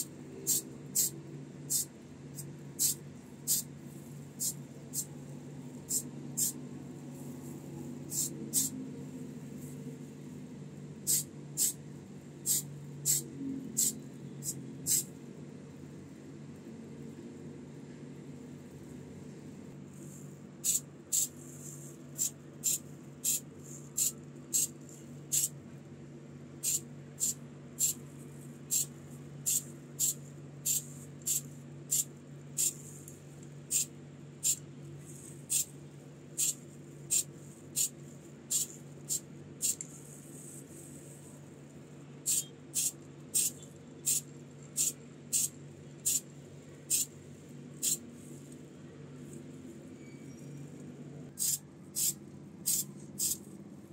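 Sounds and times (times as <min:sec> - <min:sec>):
spray can hissing in bursts: 0:00.0 - 0:03.7, 0:04.4 - 0:05.1, 0:05.9 - 0:06.6, 0:08.1 - 0:08.7, 0:11.0 - 0:11.8, 0:12.4 - 0:15.1, 0:20.6 - 0:25.5, 0:26.6 - 0:28.0, 0:28.7 - 0:33.0, 0:33.7 - 0:34.6, 0:35.2 - 0:35.7, 0:36.4 - 0:40.0, 0:42.2 - 0:46.3, 0:46.9 - 0:47.1, 0:47.8 - 0:48.0, 0:51.4 - 0:53.4
steady low hum: 0:00.0 - 0:53.9.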